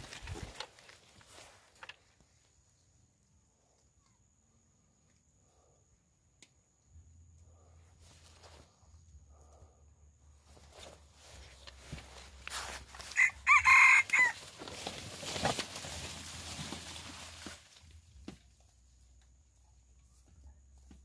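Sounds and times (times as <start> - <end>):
rooster crowing: 13.0 - 14.5.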